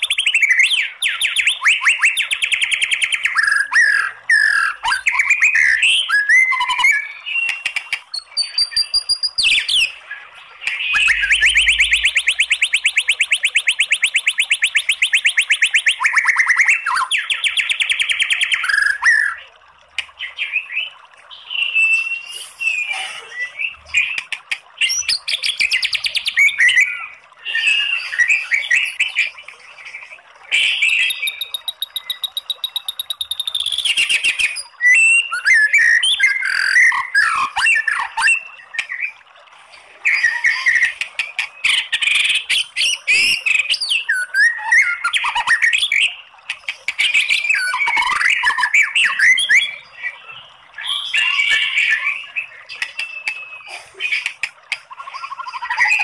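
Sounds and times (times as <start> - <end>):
bird singing whistled song: 0.0 - 10.0, 10.7 - 19.4, 20.4 - 24.2, 30.5 - 39.2, 40.1 - 46.2, 47.0 - 53.7.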